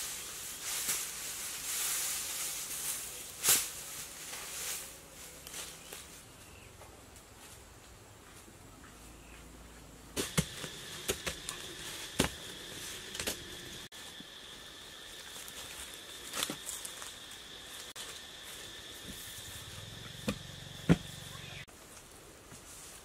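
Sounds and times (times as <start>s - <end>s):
sticks thudding into soil: 10.2s - 12.4s
high-pitched insect drone: 10.5s - 21.7s.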